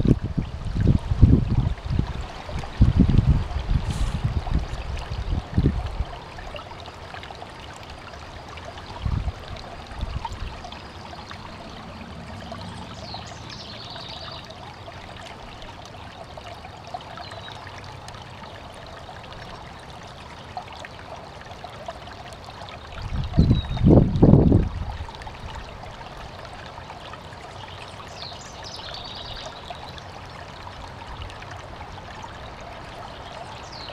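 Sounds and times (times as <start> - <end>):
stream running over rocks: 0.0 - 33.9.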